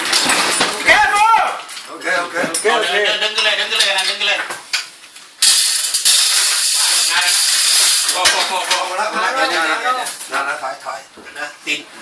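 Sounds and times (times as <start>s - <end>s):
men's voices: 6.8s - 11.9s.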